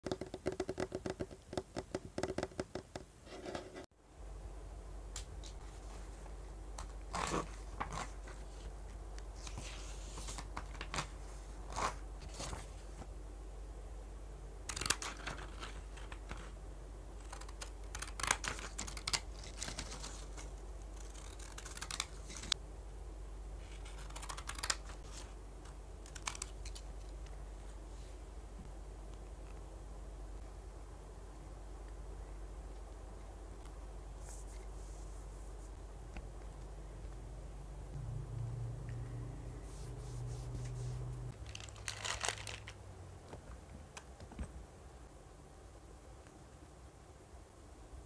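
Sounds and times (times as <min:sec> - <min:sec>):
paper rustling and crinkling: 0:06.8 - 0:08.8, 0:09.4 - 0:13.1, 0:14.7 - 0:16.6, 0:17.4 - 0:22.6, 0:40.7 - 0:42.8
paper snipping or tearing: 0:17.2 - 0:22.6
low hum: 0:25.1 - 0:41.7.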